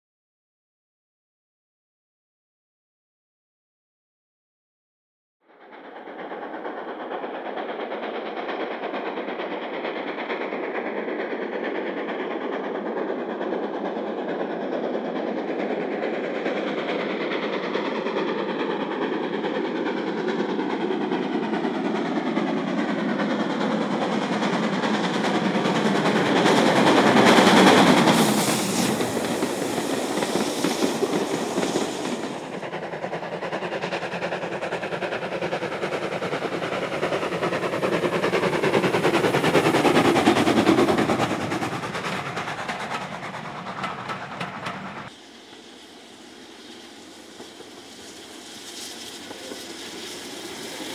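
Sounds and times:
steam locomotive exhaust beats: 5.5 - 50.9
steam locomotive working hard: 5.5 - 50.9
wheels clattering on rails: 5.8 - 45.2.

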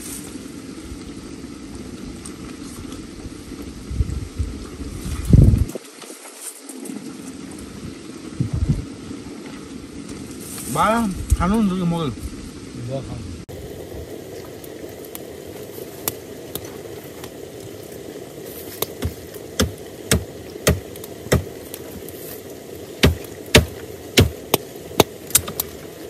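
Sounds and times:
wood fire crackling: 0.0 - 26.0
sharp fire pops: 18.5 - 22.2, 23.0 - 25.9.

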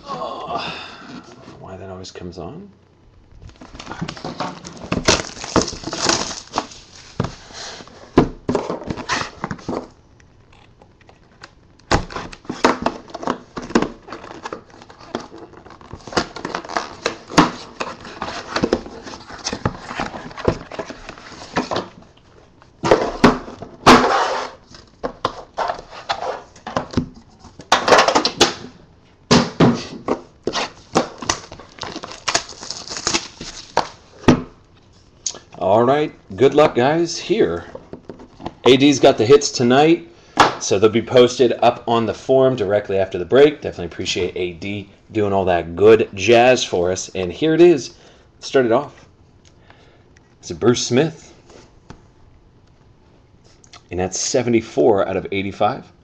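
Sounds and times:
plastic shrink-wrap crinkling and tearing: 4.6 - 7.1, 30.6 - 33.9.

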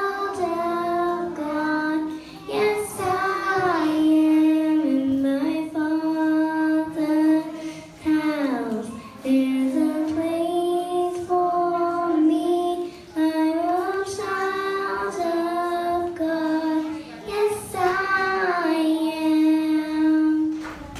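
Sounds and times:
girl singing into microphone: 0.0 - 20.9
girl breathing: 2.1 - 2.5, 7.5 - 8.0.

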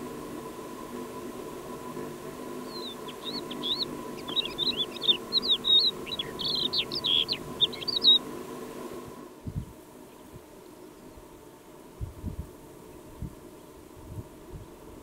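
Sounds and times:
lark singing: 2.6 - 8.3.

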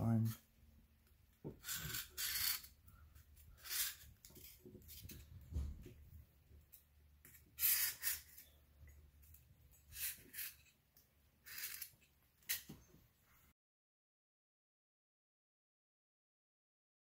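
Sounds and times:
marker scratching on styrofoam: 1.6 - 2.8, 3.4 - 5.2, 7.2 - 8.6, 9.9 - 10.7, 11.4 - 12.6.

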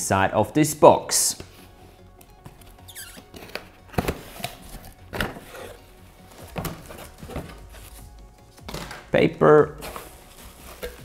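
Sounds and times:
quiet background music: 0.0 - 11.0
cardboard flaps rustling and scraping: 2.4 - 8.1, 9.8 - 11.0.

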